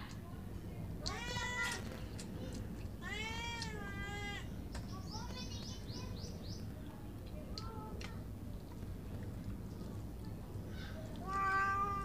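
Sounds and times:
cat meowing: 11.2s - 12.0s.

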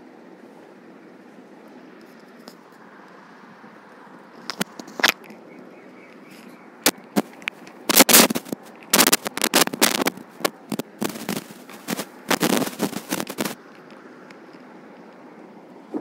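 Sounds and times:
cloth rustling: 7.9s - 13.6s.

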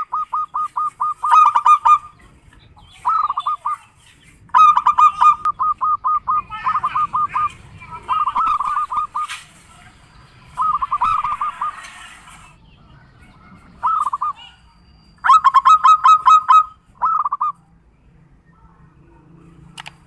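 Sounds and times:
dove cooing: 0.0s - 12.6s, 13.3s - 14.6s, 15.2s - 17.6s.

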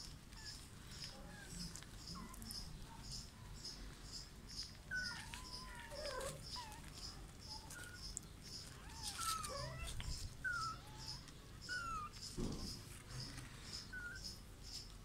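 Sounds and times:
faint high chirp: 0.4s - 12.4s, 13.1s - 14.9s
kittens mewing: 4.9s - 12.3s.

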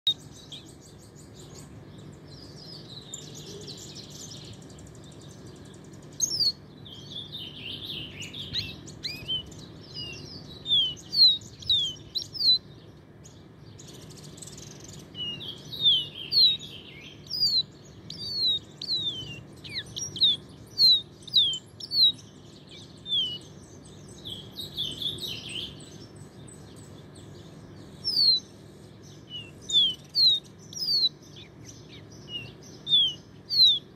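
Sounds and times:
low background hum: 0.0s - 33.9s
songbird chirping: 0.0s - 33.9s
scratchy twittering: 8.2s - 12.6s, 14.0s - 23.5s, 29.3s - 33.9s.

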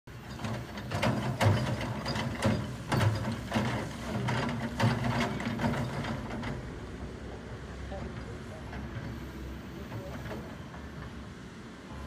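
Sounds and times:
excavator bucket clattering: 0.1s - 6.5s
excavator engine drone: 0.1s - 12.0s.

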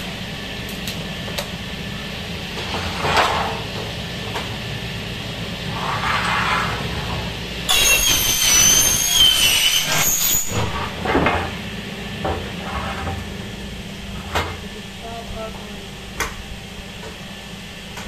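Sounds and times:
saw screeching on metal: 7.7s - 10.8s
steady low hum: 10.6s - 18.0s.

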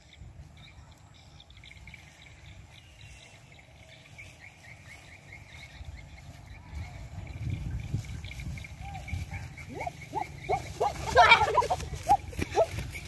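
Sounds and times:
steady low rumble: 4.7s - 13.0s.

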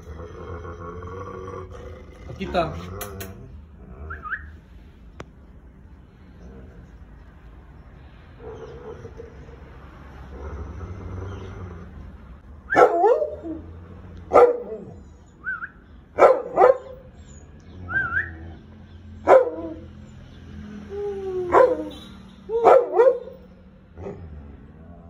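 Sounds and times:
large dog barking: 12.7s - 15.1s, 16.1s - 17.2s, 19.2s - 19.9s, 21.5s - 21.9s, 22.5s - 24.4s
high rising whistles: 15.3s - 15.9s.

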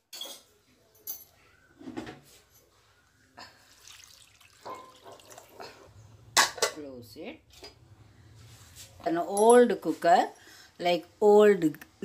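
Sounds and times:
water pouring into pot: 3.6s - 5.9s.

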